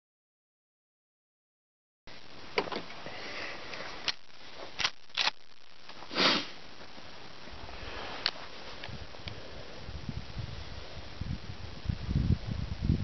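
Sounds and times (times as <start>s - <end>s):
outdoor background hiss: 2.1s - 13.0s
sniff close to microphone: 6.1s - 6.6s.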